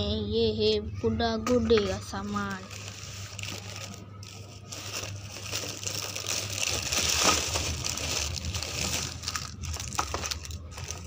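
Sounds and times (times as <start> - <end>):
plastic bag rustling: 2.4 - 11.0.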